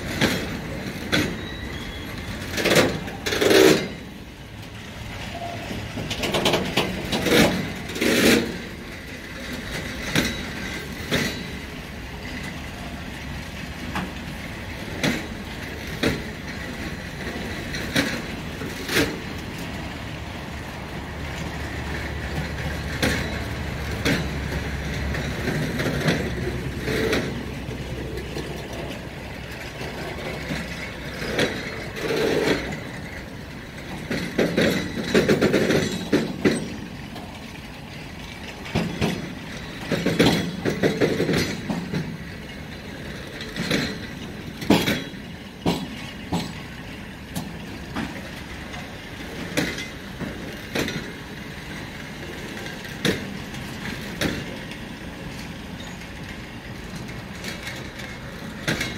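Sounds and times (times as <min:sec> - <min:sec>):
train rumble: 0:00.0 - 0:58.9
wheel clacks over rail joints: 0:00.0 - 0:58.9.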